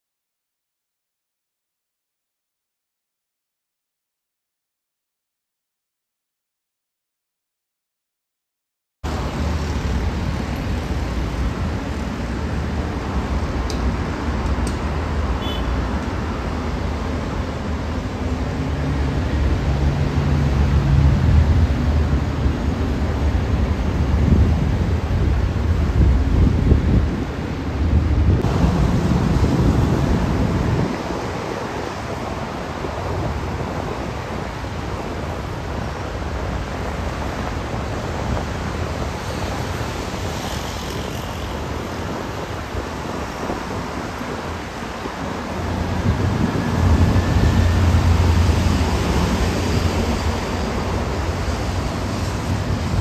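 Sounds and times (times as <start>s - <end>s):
distant jet engines rushing: 9.1s - 53.0s
wind buffeting microphone: 16.1s - 53.0s.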